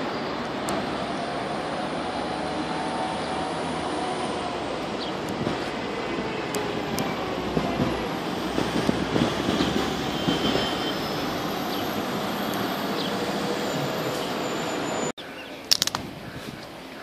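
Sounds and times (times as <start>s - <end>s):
tram passing: 0.0s - 15.1s
city street traffic: 0.0s - 17.0s
sharp clicks: 15.7s - 16.0s.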